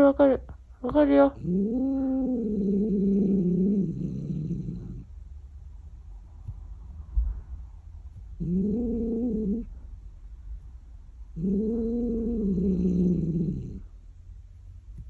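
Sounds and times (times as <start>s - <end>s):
cat moaning growls: 1.3s - 5.1s, 8.4s - 9.7s, 11.4s - 13.9s.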